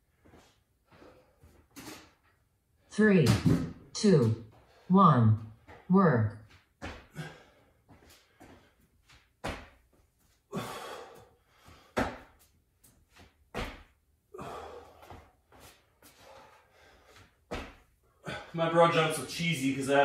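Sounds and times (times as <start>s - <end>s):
feet and hands thudding on floor: 6.8s - 10.0s, 11.6s - 14.0s, 17.1s - 17.9s.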